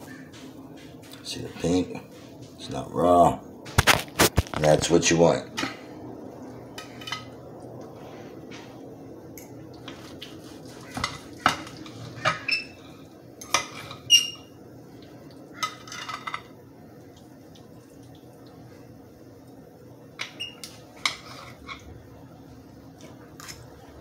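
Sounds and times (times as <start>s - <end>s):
knife and fork scraping a plate: 9.9s - 14.5s, 20.2s - 21.8s.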